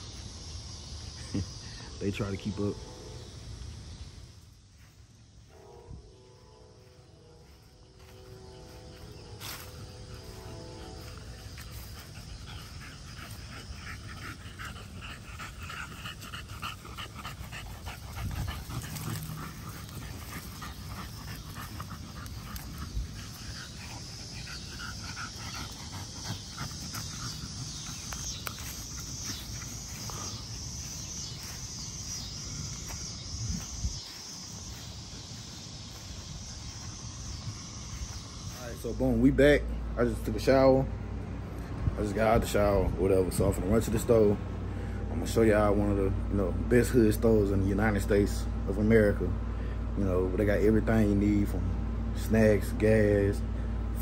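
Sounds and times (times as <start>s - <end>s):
dogs panting: 6.8s - 53.4s.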